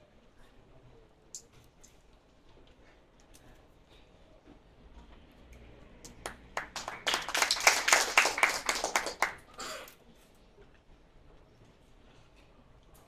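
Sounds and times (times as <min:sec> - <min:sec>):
audience clapping: 0:06.0 - 0:09.5.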